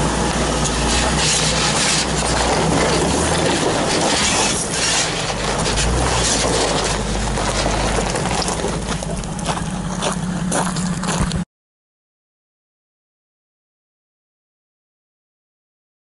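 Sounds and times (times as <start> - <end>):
engine running at low speed: 0.0 - 11.5
tyres crunching on gravel: 0.0 - 11.5.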